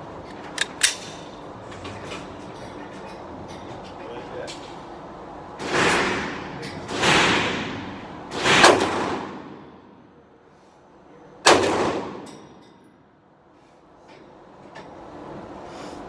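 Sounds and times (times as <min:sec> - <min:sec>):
pistol shots with echo: 0:06.9 - 0:09.6, 0:11.4 - 0:12.3.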